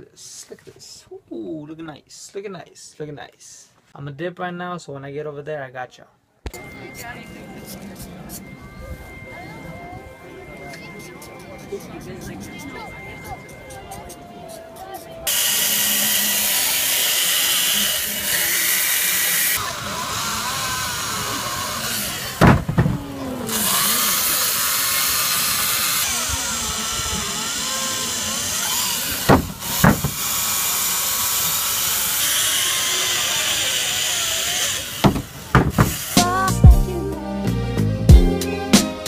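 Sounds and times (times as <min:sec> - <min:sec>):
power tool grinding ice: 0:15.3 - 0:36.6
loud thumps: 0:22.4 - 0:23.4, 0:29.2 - 0:30.4, 0:35.0 - 0:36.5.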